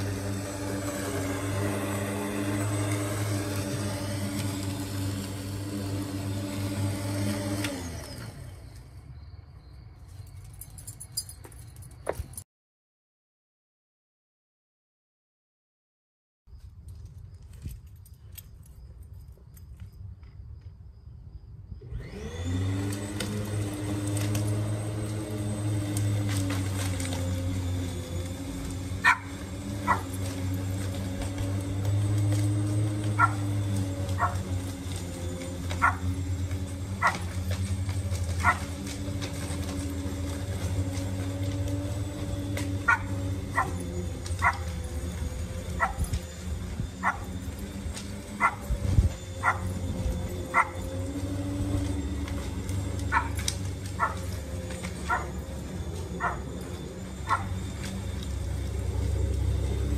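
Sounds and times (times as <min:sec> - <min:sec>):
electric lawn mower humming: 0:00.0 - 0:09.6, 0:21.5 - 0:59.9
dog barking: 0:29.0 - 0:30.1, 0:33.2 - 0:33.4, 0:34.2 - 0:34.4, 0:35.8 - 0:36.0, 0:38.4 - 0:38.6, 0:42.9 - 0:43.8, 0:44.4 - 0:44.6, 0:45.8 - 0:46.0, 0:47.0 - 0:47.2, 0:48.4 - 0:48.6, 0:49.4 - 0:49.7, 0:50.5 - 0:50.8, 0:53.1 - 0:53.4, 0:54.0 - 0:54.2, 0:55.1 - 0:55.4, 0:56.2 - 0:56.5, 0:57.2 - 0:57.5.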